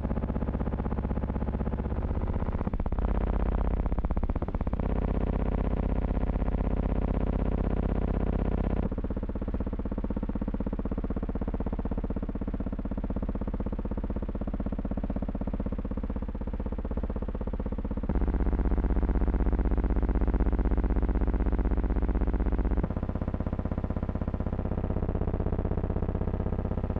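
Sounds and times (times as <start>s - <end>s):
fluttering electronic buzz: 0.6s - 9.0s, 9.6s - 26.9s.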